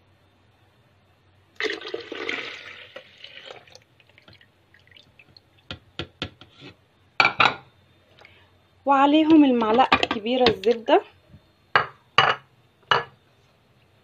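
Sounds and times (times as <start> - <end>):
milk pouring and splashing: 1.6 - 5.4.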